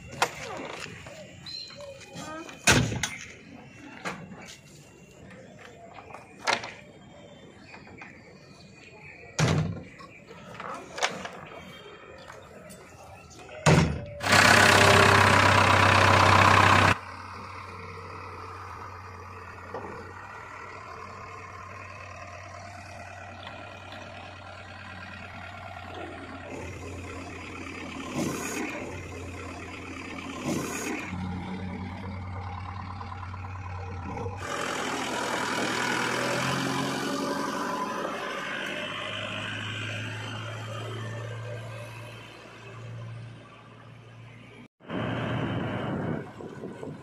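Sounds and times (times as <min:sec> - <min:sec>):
diesel engine starting and revving: 0:13.1 - 0:47.0.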